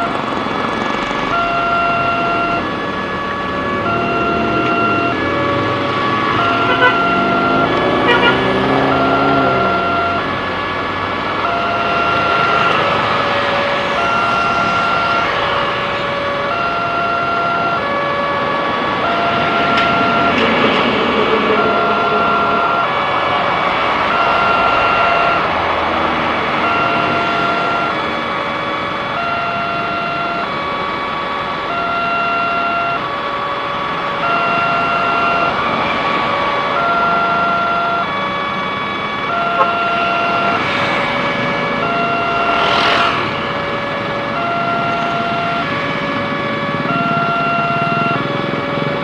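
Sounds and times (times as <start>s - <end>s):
level crossing alarm two-tone: 0.0s - 0.4s, 1.3s - 10.4s, 11.3s - 13.1s, 13.8s - 23.1s, 24.0s - 25.6s, 26.5s - 28.2s, 28.8s - 49.0s
road traffic noise: 0.0s - 49.0s
vehicle passing close by: 2.7s - 16.0s, 17.9s - 28.2s, 39.3s - 46.9s.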